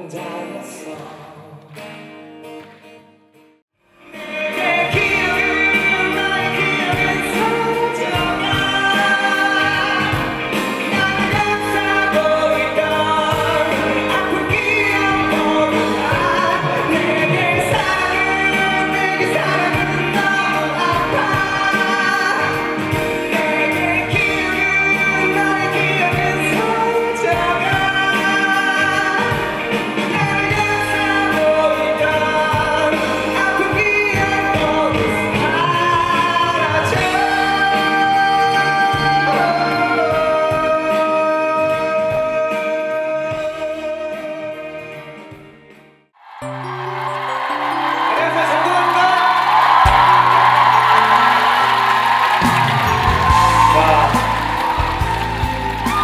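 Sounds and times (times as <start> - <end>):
man singing: 0.0 - 1.7, 4.0 - 45.5
keyboard: 0.0 - 56.0
live band playing: 4.0 - 56.0.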